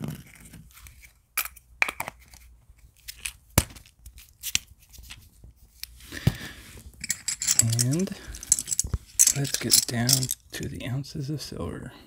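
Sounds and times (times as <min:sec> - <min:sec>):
plastic caps clicking and knocking: 0:00.2 - 0:04.7, 0:07.0 - 0:10.4
scraping and rustling: 0:06.2 - 0:10.4.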